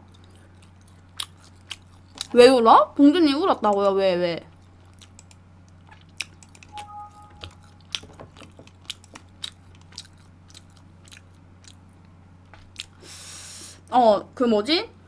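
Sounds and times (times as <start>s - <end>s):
mouth chewing food: 0.0s - 2.4s, 4.5s - 6.8s, 7.4s - 13.0s.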